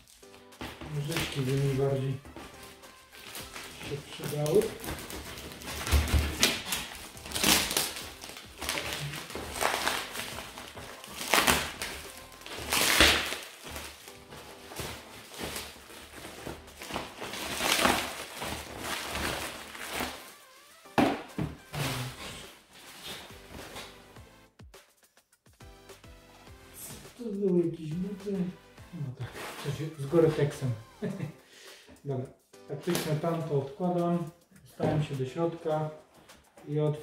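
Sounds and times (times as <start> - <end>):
plastic wrap crinkling and tearing: 0.0 - 24.1, 29.2 - 31.3
faint background music: 0.0 - 25.0, 25.6 - 37.0.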